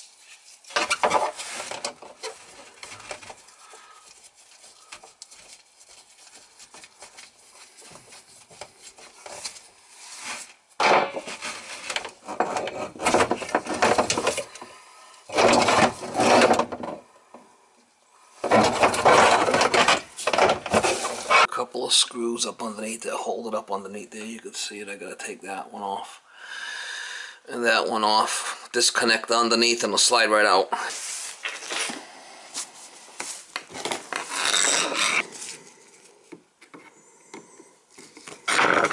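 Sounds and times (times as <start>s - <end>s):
rubber hose rubbing and scraping: 0.0s - 17.0s, 18.3s - 21.6s, 30.1s - 37.0s, 37.9s - 38.9s.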